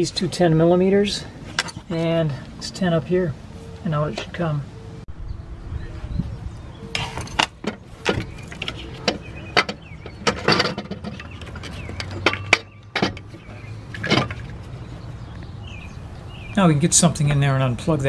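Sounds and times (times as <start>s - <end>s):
metallic clinks and knocks: 6.9s - 14.6s.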